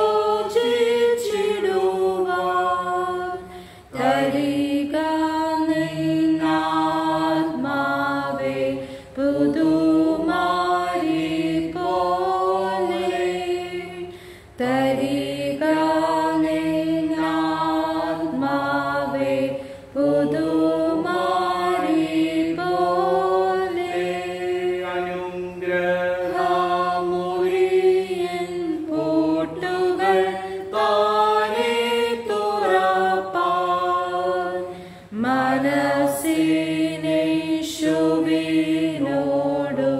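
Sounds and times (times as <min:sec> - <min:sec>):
hymn sung slowly: 0:00.0 - 0:39.9.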